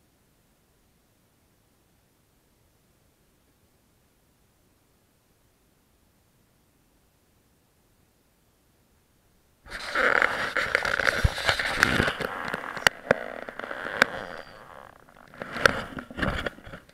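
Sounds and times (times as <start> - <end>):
camera handling rustle: 9.7 - 16.9.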